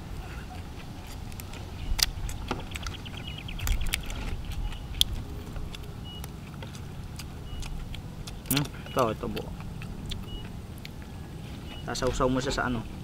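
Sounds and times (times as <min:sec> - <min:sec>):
prawn shells cracking: 0:00.8 - 0:11.1.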